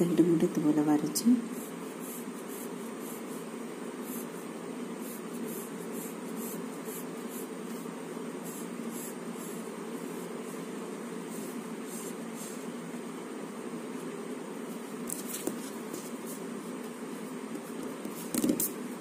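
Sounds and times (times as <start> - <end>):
low room hum: 0.0 - 19.0
pencil scratching on paper: 1.5 - 12.7.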